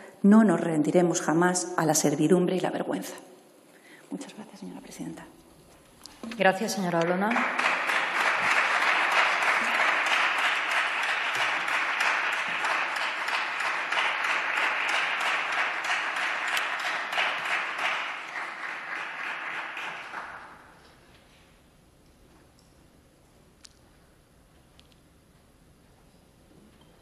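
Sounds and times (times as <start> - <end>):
people clapping: 6.9 - 21.0.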